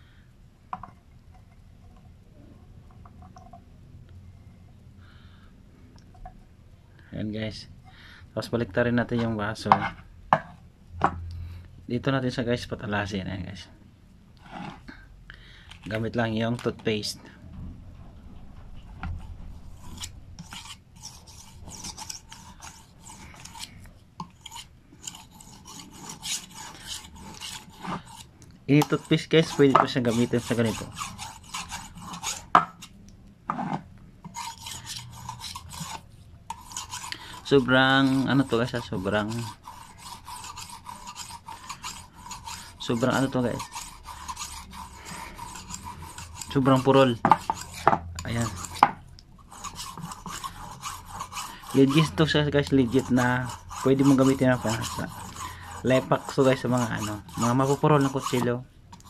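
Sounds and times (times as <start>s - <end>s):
knife scraping on ceramic: 9.0s - 11.2s, 14.4s - 14.9s, 18.8s - 59.0s.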